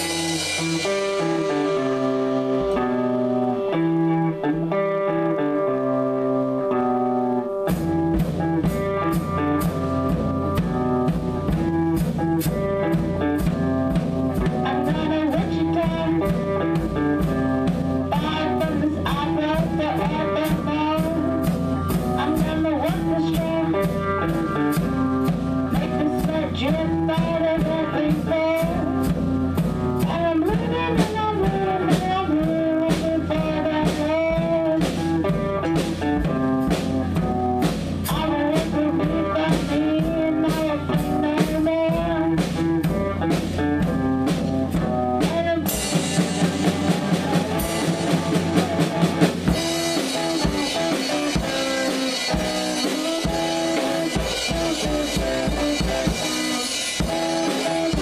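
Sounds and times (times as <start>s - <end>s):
drum kit: 0.0s - 58.0s
electric guitar: 0.0s - 58.0s
girl singing: 18.1s - 21.3s, 22.1s - 24.3s, 30.0s - 34.9s.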